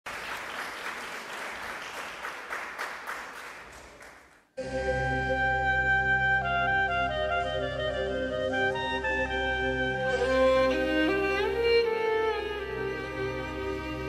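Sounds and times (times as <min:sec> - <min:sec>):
audience applause: 0:00.0 - 0:04.5
instrumental music with drone: 0:04.6 - 0:14.0.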